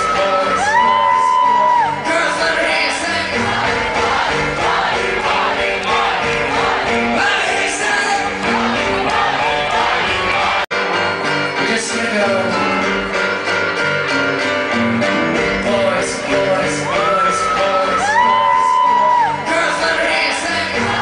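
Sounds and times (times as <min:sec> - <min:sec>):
man singing: 0:00.0 - 0:03.5, 0:07.1 - 0:08.8, 0:11.2 - 0:13.3, 0:14.9 - 0:21.0
live rock band playing: 0:00.0 - 0:21.0.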